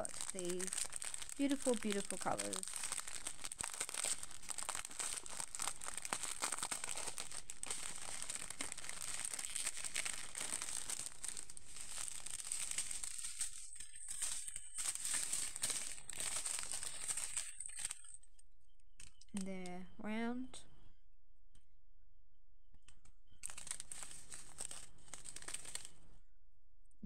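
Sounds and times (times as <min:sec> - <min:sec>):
plastic bags crinkling: 0:00.0 - 0:18.3, 0:19.0 - 0:19.4, 0:23.3 - 0:26.1.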